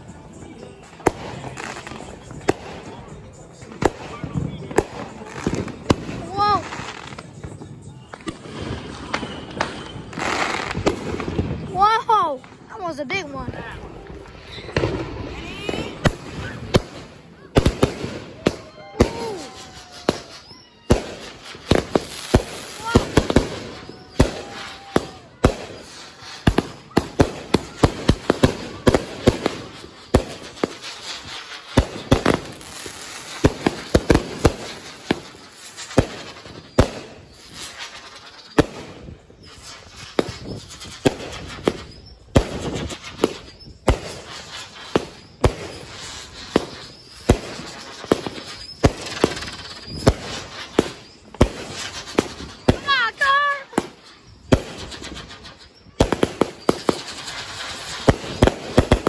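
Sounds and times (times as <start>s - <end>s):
fireworks bangs and crackling: 0.0s - 59.0s.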